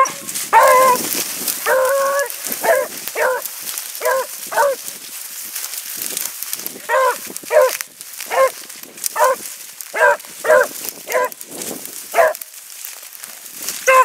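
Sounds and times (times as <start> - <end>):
hound baying: 0.0 - 4.8, 6.9 - 11.4, 12.1 - 12.4
faint rustling in brush: 0.0 - 14.0.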